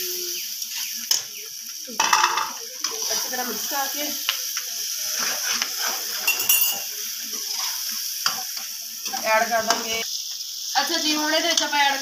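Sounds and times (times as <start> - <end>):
hot oil sizzling: 0.0 - 12.0
metal spoon scraping a pot: 5.1 - 8.4.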